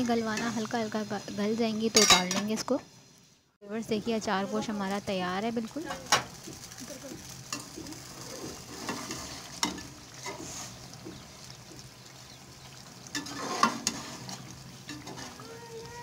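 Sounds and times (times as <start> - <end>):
curry sizzling faintly: 0.0 - 16.0
metal ladle scraping pot: 7.6 - 10.9, 13.0 - 15.4.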